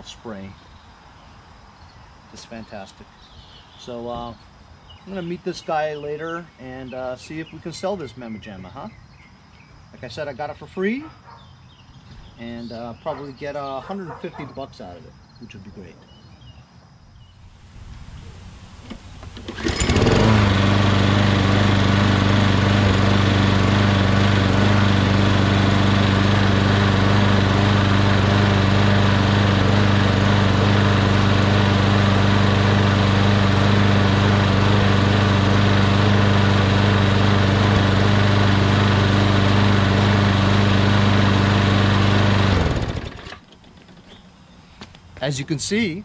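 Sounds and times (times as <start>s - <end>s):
lawn mower engine running: 17.6s - 44.2s.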